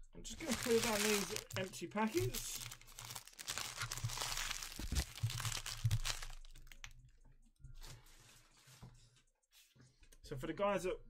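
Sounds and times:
wrappers crinkling: 0:00.3 - 0:06.9.

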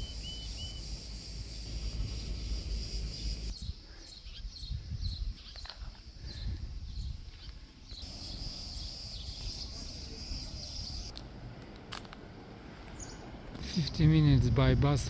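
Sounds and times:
bird chirps: 0:00.0 - 0:11.1, 0:12.9 - 0:13.3
insects buzzing: 0:00.0 - 0:11.2
wind rumbling on microphone: 0:01.6 - 0:11.1.

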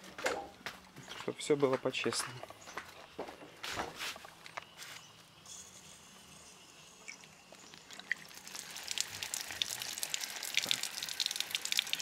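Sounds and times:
water splashing from a tap: 0:07.9 - 0:12.0.

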